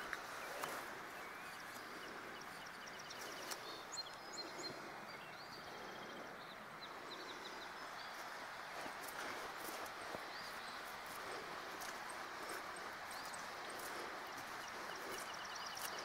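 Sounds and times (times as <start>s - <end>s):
bird chirping: 0.0s - 16.0s
stream water rushing: 7.7s - 16.0s.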